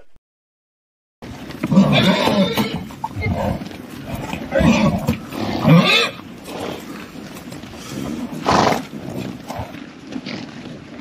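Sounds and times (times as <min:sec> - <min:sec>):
horses whinnying: 0:01.5 - 0:10.5
horse breathy blast: 0:04.2 - 0:09.8.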